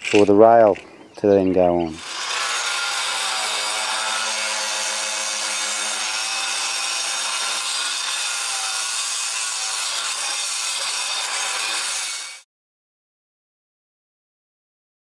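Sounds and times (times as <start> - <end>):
angle grinder cutting tile: 1.6 - 12.5.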